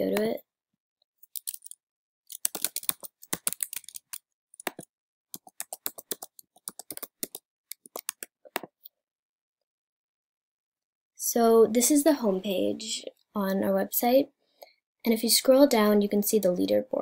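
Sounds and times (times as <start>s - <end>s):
computer keyboard typing: 1.4s - 8.7s.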